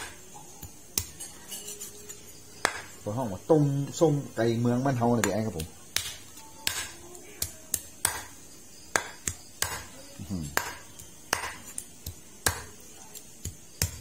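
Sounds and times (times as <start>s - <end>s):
cleaver chopping on wooden board: 2.6s - 3.0s, 5.2s - 8.3s, 8.9s - 9.9s, 10.5s - 12.8s, 13.4s - 14.0s.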